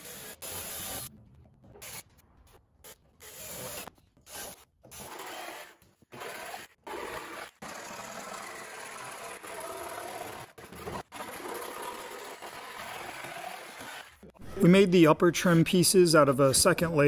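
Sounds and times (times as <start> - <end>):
jigsaw cutting plywood: 3.3 - 14.3.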